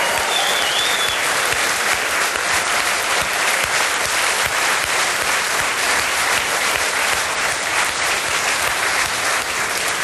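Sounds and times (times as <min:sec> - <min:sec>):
audience applauding: 0:00.0 - 0:10.0
high wavering whistle: 0:00.3 - 0:01.2.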